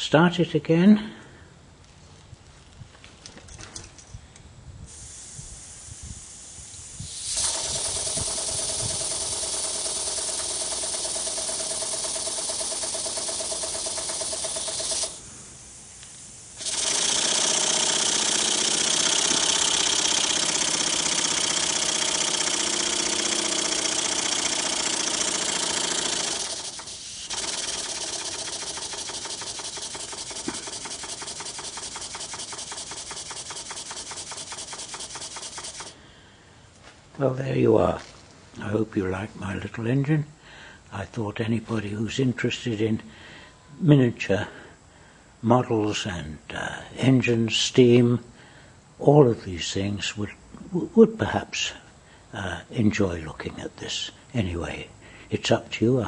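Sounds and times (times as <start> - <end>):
air engine hissing chuff: 4.9 - 36.1.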